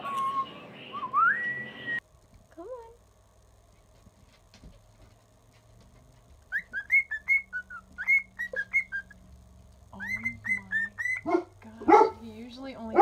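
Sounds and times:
cockatiel whistling: 6.5 - 9.2.

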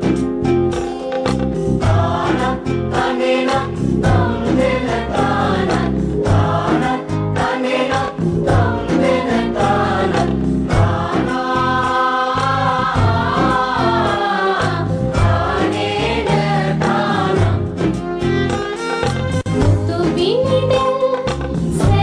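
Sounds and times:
drum strokes: 0.0 - 20.5
chorus of voices singing: 1.8 - 19.3.

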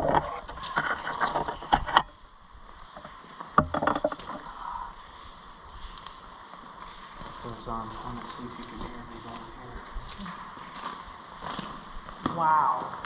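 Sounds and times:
faint steady hiss: 0.1 - 13.0
sharp clicks and knocks: 3.0 - 4.4.

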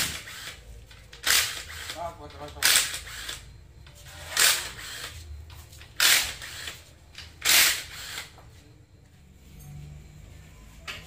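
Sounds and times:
power tool bursts: 6.0 - 6.8, 7.4 - 8.3.

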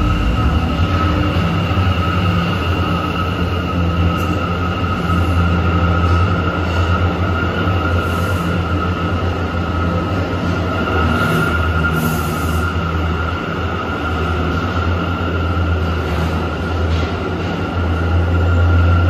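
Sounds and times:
high whine: 0.0 - 13.9
subway train rumble: 0.0 - 19.0.

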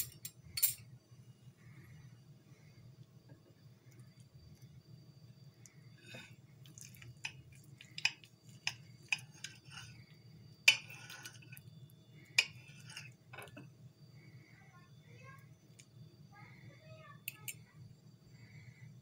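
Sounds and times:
cutlery clinking on a plate: 0.0 - 0.8, 10.7 - 11.4.

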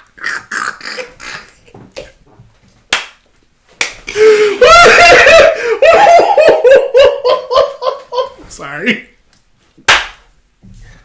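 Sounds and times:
men laughing: 4.1 - 8.4
sharp smack: 9.9 - 10.2.

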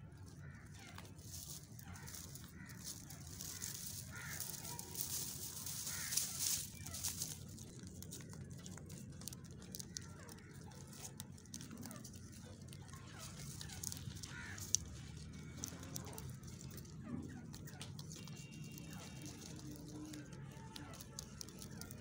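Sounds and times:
low background rumble: 0.0 - 22.0
straw rustling: 0.0 - 22.0.

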